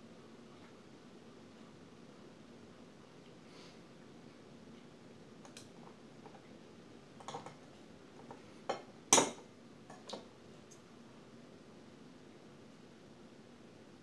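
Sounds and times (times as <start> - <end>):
cutlery clinking on ceramic plate: 7.2 - 7.6, 8.7 - 10.2.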